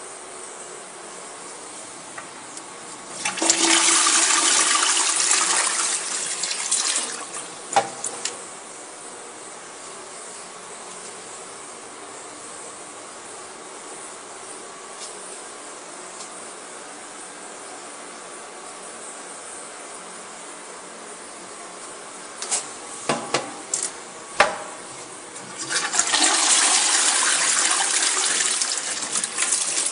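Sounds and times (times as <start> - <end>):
toilet flushing: 3.0 - 8.4, 24.7 - 29.9
toilet seat and lid clacks: 23.1 - 24.8
toilet lid closing knock: 24.4 - 24.8
cistern refilling hiss: 25.0 - 29.9.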